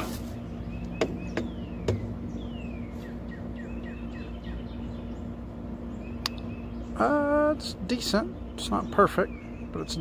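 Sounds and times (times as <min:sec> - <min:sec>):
birds chirping: 0:00.0 - 0:10.0
steady low hum: 0:00.0 - 0:10.0.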